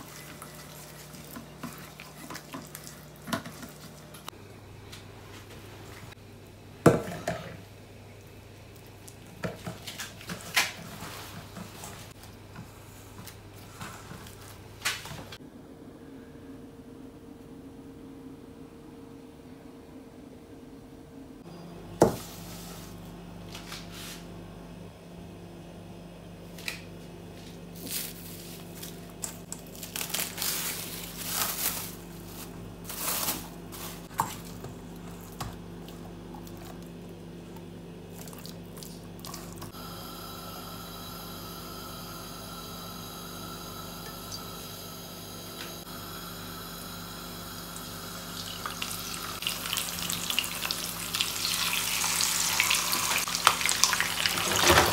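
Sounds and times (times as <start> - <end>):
frying crackle: 28.0 - 34.1, 47.4 - 54.9.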